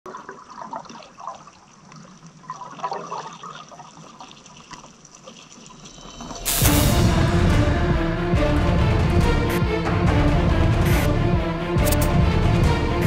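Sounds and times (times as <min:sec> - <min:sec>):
underwater sloshing and bubbling: 0:00.1 - 0:06.5
loud music: 0:06.4 - 0:13.0.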